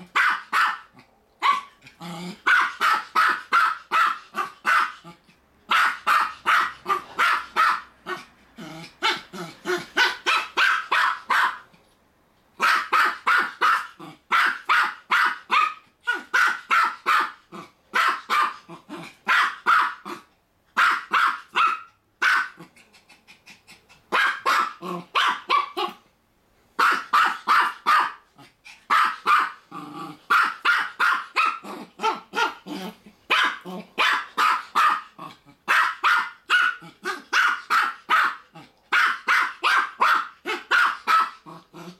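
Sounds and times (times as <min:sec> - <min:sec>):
dog barking rapidly: 0:00.0 - 0:01.8, 0:02.4 - 0:05.0, 0:05.7 - 0:08.3, 0:09.0 - 0:11.7, 0:12.6 - 0:22.7, 0:24.1 - 0:26.0, 0:26.8 - 0:28.3, 0:28.9 - 0:29.6, 0:30.3 - 0:32.7, 0:33.3 - 0:41.5.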